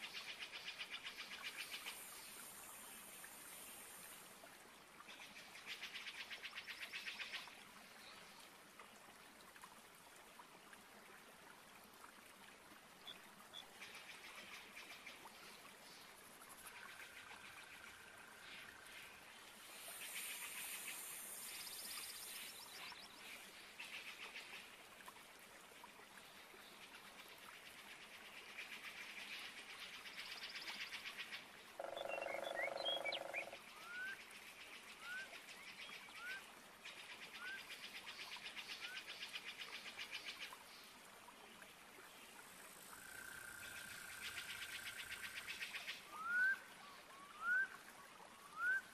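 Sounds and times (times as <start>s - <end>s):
animal calls in pulsing trills: 31.8s - 33.6s
deep stacked-tone animal call: 31.8s - 33.6s.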